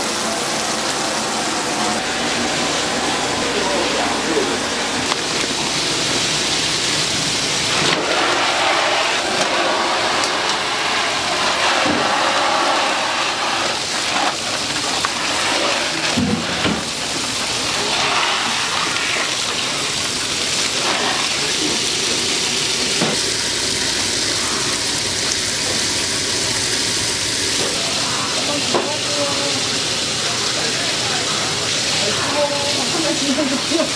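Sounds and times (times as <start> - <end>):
steady rushing hiss: 0.0 - 16.2
kitchen knocks and clatters: 23.0 - 23.3.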